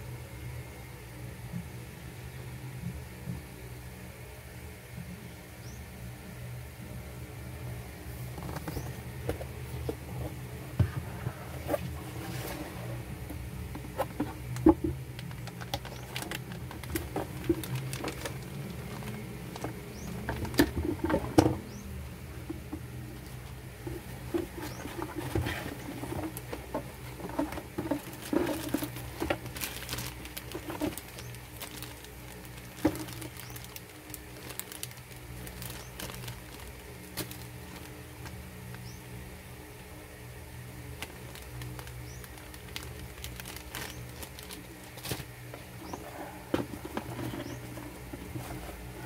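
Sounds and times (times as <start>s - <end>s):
low steady hum: 0.0s - 49.0s
cardboard rustling and scraping: 8.0s - 38.7s, 41.0s - 49.0s
plastic bags crinkling: 8.1s - 38.9s, 40.6s - 49.0s.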